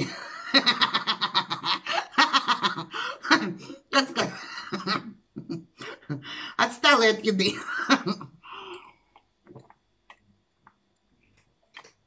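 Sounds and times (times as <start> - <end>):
woman laughing: 7.4 - 8.3.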